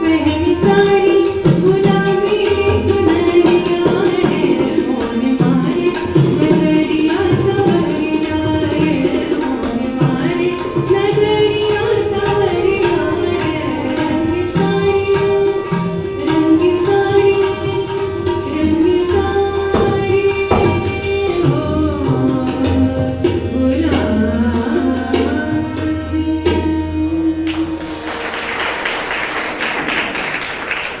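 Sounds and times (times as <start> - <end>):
woman singing: 0.0 - 27.9
harmonium: 0.0 - 31.0
tabla strokes: 0.0 - 31.0
tanpura drone: 0.0 - 31.0
audience applauding: 27.5 - 31.0.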